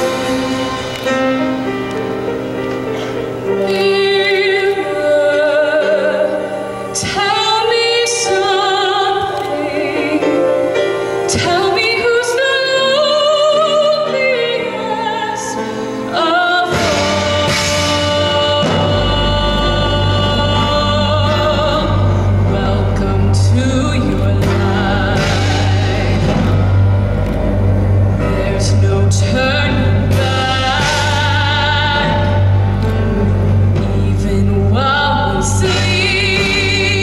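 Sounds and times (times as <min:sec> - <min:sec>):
woman singing with vibrato: 0:00.0 - 0:01.7, 0:03.6 - 0:37.0
live band through loudspeakers: 0:00.0 - 0:37.0
heavy bass: 0:16.7 - 0:37.0.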